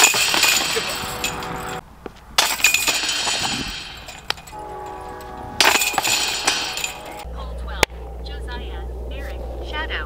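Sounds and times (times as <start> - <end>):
discs striking basket chains: 0.0 - 1.8, 2.4 - 7.3
ringing metallic tone: 0.0 - 1.8, 2.4 - 9.7.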